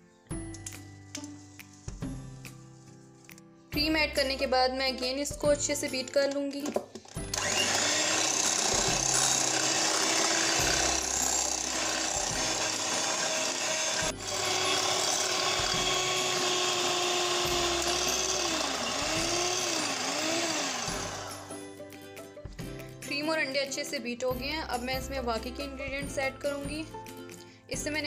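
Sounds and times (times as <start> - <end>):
electric hand mixer whirring: 7.2 - 21.6.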